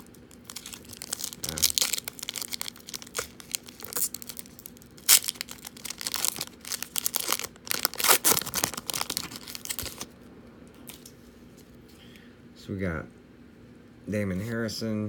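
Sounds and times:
foil wrapper crinkling and tearing: 0:00.0 - 0:10.1.

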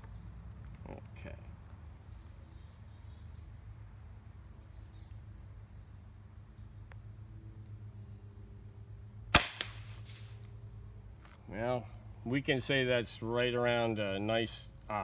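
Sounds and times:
crickets chirping: 0:00.0 - 0:15.0
air rifle shot crack: 0:09.3 - 0:10.3.

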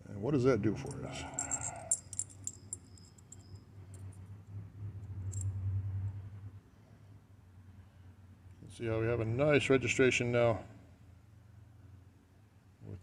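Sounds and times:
small metal parts clicking: 0:00.9 - 0:04.3, 0:05.3 - 0:05.5.

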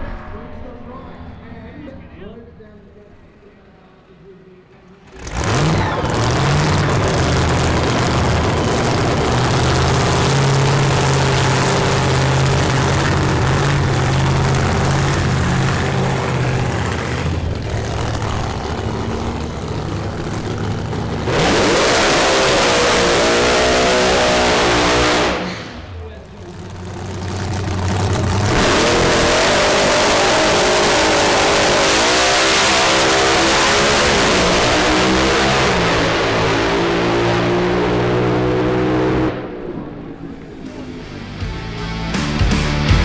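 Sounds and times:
race car engine idling lumpy: 0:04.7 - 0:21.6, 0:25.5 - 0:29.4
race car engine revving high: 0:04.9 - 0:41.2.

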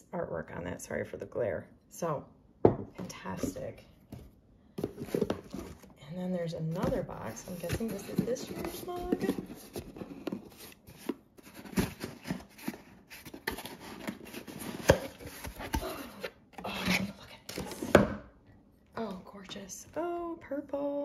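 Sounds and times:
cardboard packaging rustling: 0:04.2 - 0:16.3.

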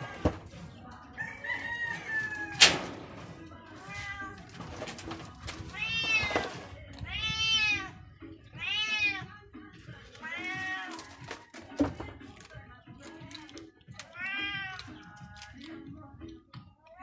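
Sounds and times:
cats meowing: 0:01.5 - 0:02.7, 0:03.5 - 0:04.6, 0:05.6 - 0:09.4, 0:10.0 - 0:11.3, 0:13.6 - 0:15.1.

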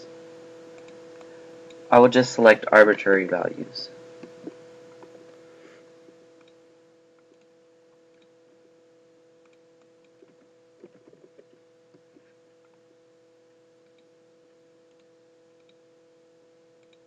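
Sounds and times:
faint steady hum: 0:00.0 - 0:17.0
mouse clicks: 0:00.8 - 0:01.8, 0:14.9 - 0:15.8, 0:16.8 - 0:17.0.

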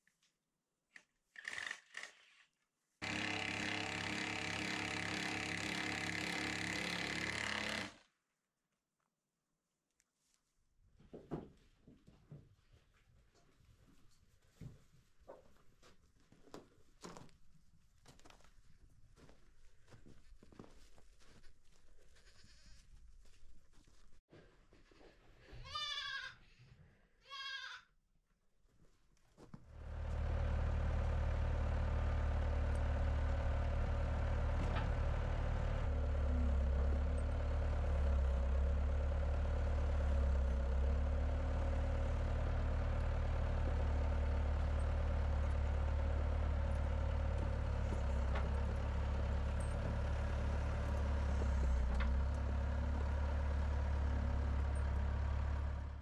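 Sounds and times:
diesel engine running: 0:03.0 - 0:07.9, 0:29.7 - 0:56.0
goat bleating: 0:25.6 - 0:26.4, 0:27.2 - 0:27.9.

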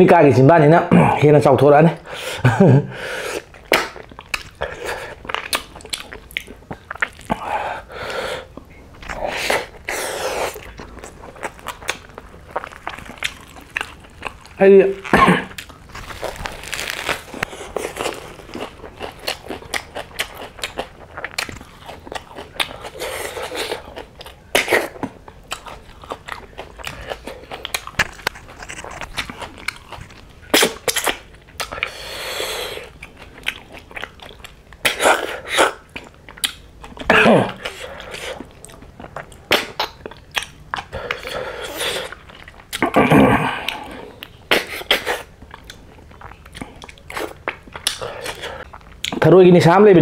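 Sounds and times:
crunchy chewing: 0:03.2 - 0:49.2.

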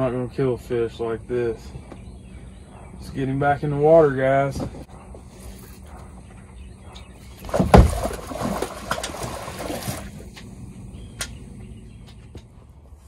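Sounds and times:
water splashing: 0:07.4 - 0:10.4
loud splash of a fish: 0:07.5 - 0:10.2.

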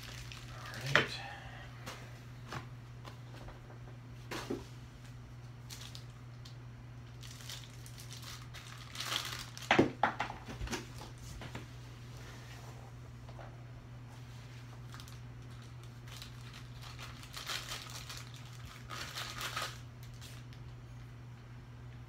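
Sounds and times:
packing material crinkling: 0:00.0 - 0:01.2, 0:05.6 - 0:10.0, 0:14.7 - 0:20.8.

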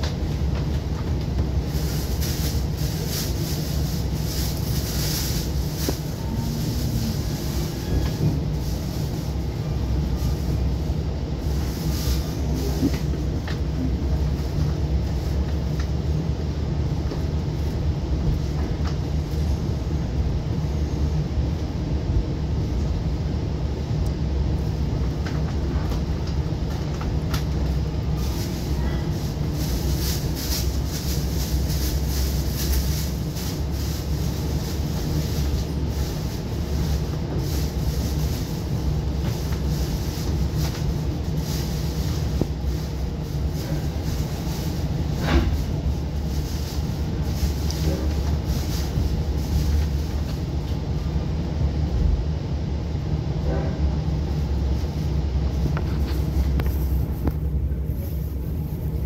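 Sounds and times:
wheel and rail noise: 0:00.0 - 0:52.3, 0:53.4 - 0:59.0
train low rumble: 0:00.0 - 0:59.0.

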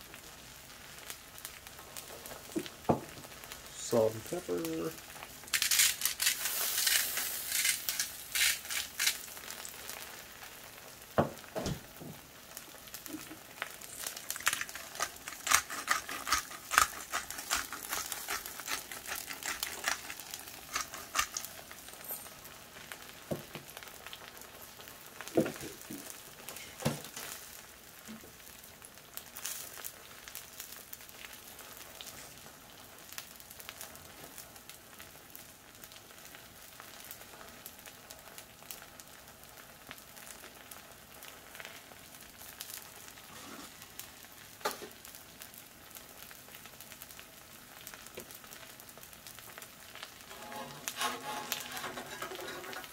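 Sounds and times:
eggs sizzling on a griddle: 0:00.0 - 0:52.9
spattering fat crackling: 0:00.2 - 0:37.3, 0:38.7 - 0:52.9.

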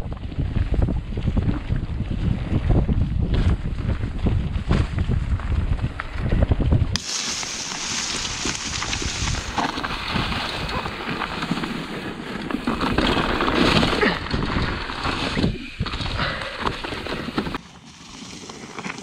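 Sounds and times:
wind noise on microphone: 0:00.0 - 0:17.6
bike tyres crunching over dirt and rock: 0:00.0 - 0:19.0
bike knocks and rattles: 0:02.6 - 0:17.6.

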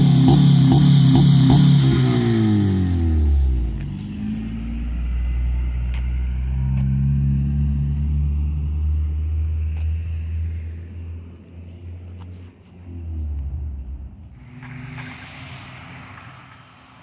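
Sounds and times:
car exhaust drone driving past: 0:00.0 - 0:17.0.

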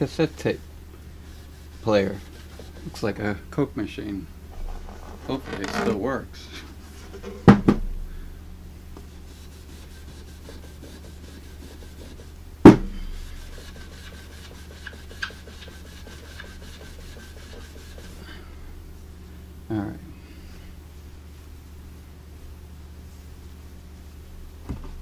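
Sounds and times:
cloth rubbing on wood: 0:00.0 - 0:03.2, 0:09.1 - 0:12.4, 0:13.1 - 0:18.3.

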